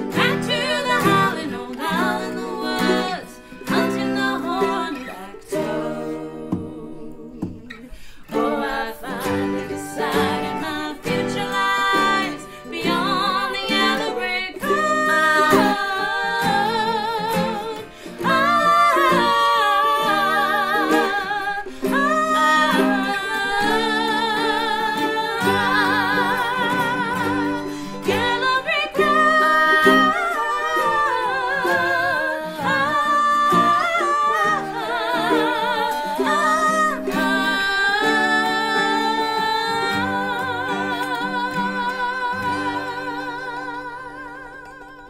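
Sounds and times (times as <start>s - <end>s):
acoustic guitar: 0.0s - 45.0s
autoharp: 0.0s - 45.0s
fiddle: 0.0s - 45.0s
mandolin: 0.0s - 45.0s
women singing with vibrato: 0.0s - 45.0s.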